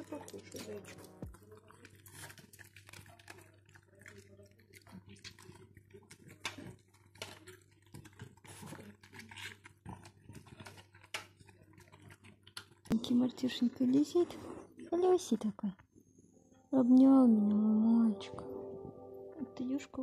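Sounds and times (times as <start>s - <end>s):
dog chewing and smacking: 0.0s - 12.9s.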